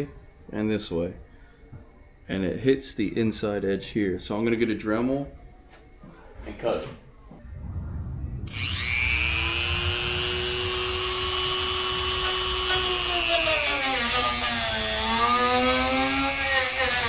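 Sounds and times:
rotary tool cutting panel: 0:08.5 - 0:14.2
rotary tool whining: 0:08.5 - 0:15.6.

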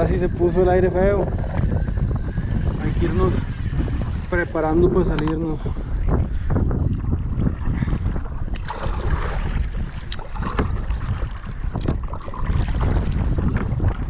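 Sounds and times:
wind buffeting microphone: 0:00.0 - 0:14.0
paddle swishing and splashing: 0:07.0 - 0:14.0.

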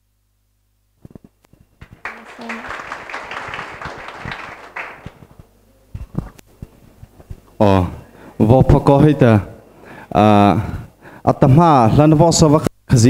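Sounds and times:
small audience applauding: 0:01.8 - 0:05.5.

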